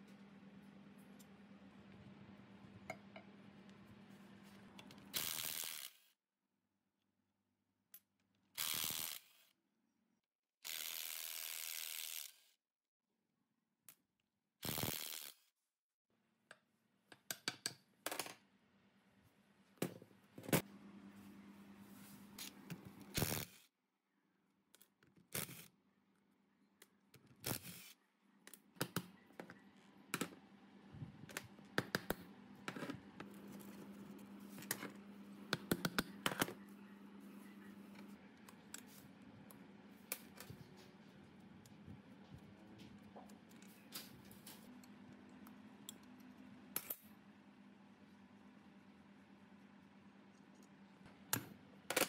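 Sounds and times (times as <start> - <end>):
low steady hum: 18.8 - 23.2, 29.1 - 52.0.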